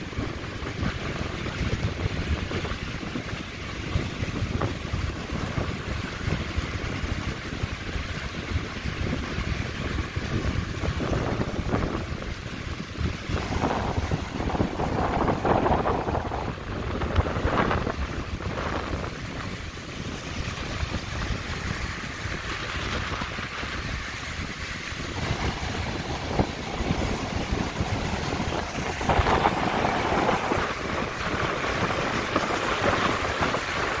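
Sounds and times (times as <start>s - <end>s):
wind buffeting microphone: 0.0s - 34.0s
surf breaking over rocks: 8.2s - 34.0s.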